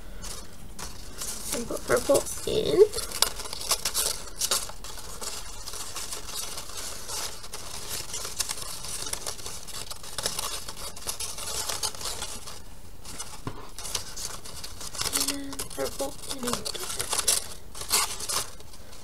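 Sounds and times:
paper crackles: 0:00.0 - 0:19.0
paper strips rustling: 0:00.0 - 0:19.0.

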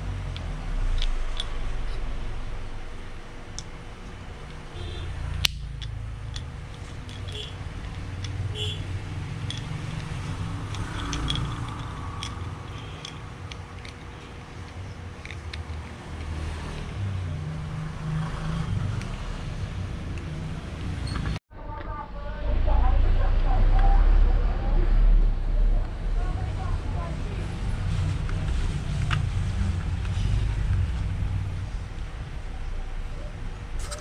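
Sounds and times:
low rumble: 0:00.0 - 0:12.7, 0:21.5 - 0:33.8
plastic clicks and rattles: 0:00.3 - 0:01.6, 0:05.4 - 0:08.7, 0:09.4 - 0:16.4.

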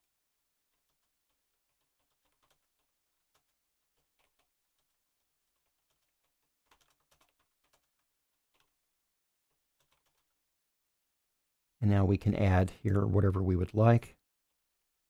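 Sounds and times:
faint keyboard typing: 0:00.0 - 0:10.4.

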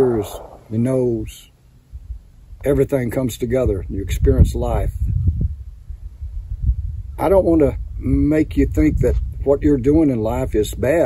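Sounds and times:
wind buffeting microphone: 0:00.0 - 0:01.2, 0:02.0 - 0:11.0
dull wind thumps: 0:00.0 - 0:01.3, 0:03.6 - 0:10.9.

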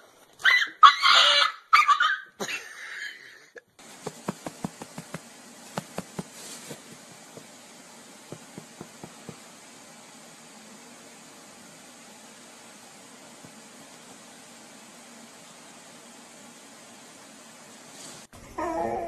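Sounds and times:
dog yelping barks: 0:00.4 - 0:02.3
steady hiss: 0:03.8 - 0:18.4.

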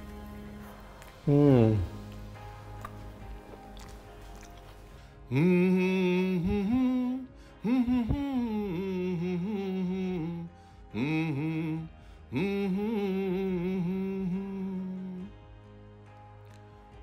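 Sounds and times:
man singing: 0:01.2 - 0:01.9, 0:05.3 - 0:15.3.

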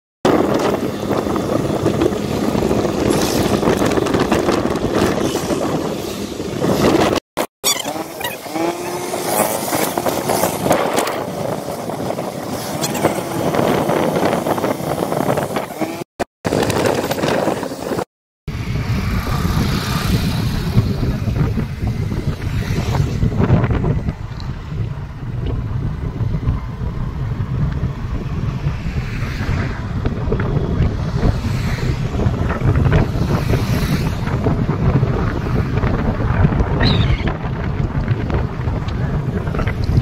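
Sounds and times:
road and engine noise: 0:00.2 - 0:40.0
wind rush: 0:00.2 - 0:40.0.

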